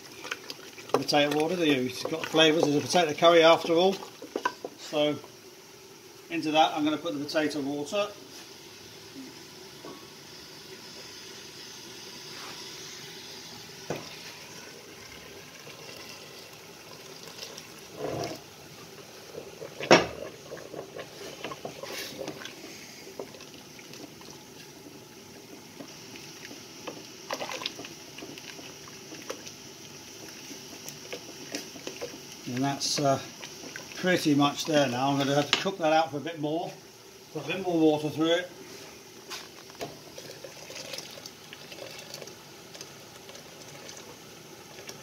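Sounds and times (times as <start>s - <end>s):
water pouring into a pot: 0.0s - 4.3s, 12.9s - 35.9s, 39.6s - 45.0s
liquid bubbling: 0.0s - 4.8s, 13.3s - 35.6s, 39.0s - 45.0s
knocks against a pot: 19.8s - 20.2s.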